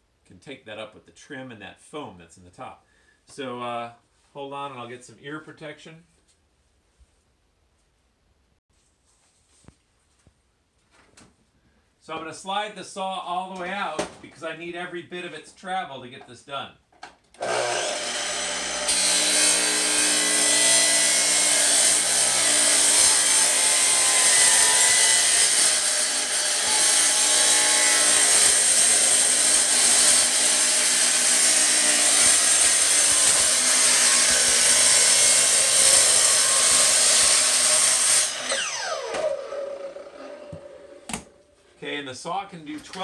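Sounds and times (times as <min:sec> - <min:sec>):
saw motor spinning down: 0:17.4 - 0:19.0, 0:34.2 - 0:41.1
saw grinding through steel sheets: 0:17.4 - 0:41.0.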